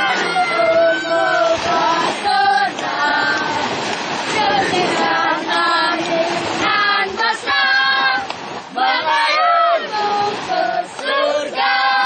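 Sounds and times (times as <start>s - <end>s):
high voices singing together: 0.0s - 12.0s.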